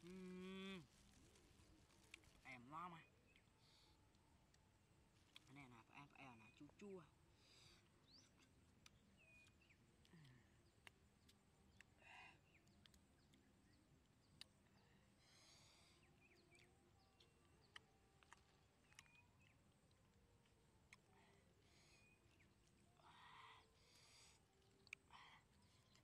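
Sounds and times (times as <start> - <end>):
faint bird chirps: 5.5 - 20.1, 20.9 - 26.0.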